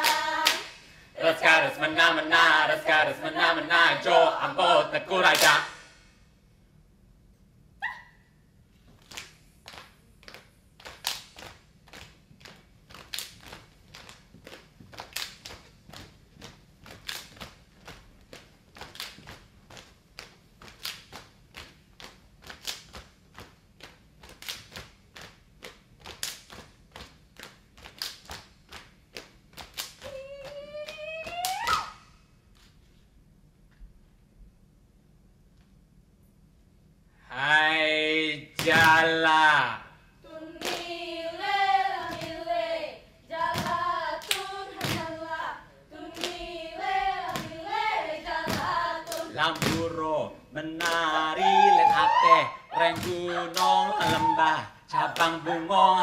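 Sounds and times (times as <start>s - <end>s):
hand claps and body slaps: 0.0s - 0.9s, 5.3s - 5.9s, 8.9s - 32.0s, 38.6s - 39.0s, 40.6s - 40.9s, 43.5s - 45.1s, 47.3s - 47.6s, 48.5s - 50.0s, 50.8s - 51.1s, 52.8s - 54.5s
group shouting: 51.3s - 56.0s.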